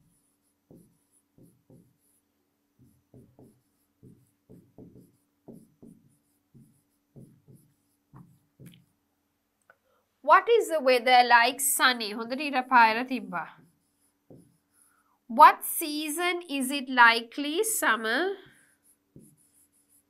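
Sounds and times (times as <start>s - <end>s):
pen writing on a board: 0.0s - 8.9s, 13.5s - 14.9s, 18.4s - 20.0s.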